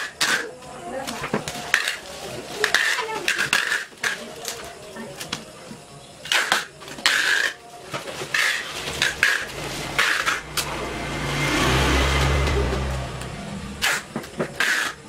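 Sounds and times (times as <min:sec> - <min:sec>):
motor vehicle passing: 0:08.7 - 0:14.9.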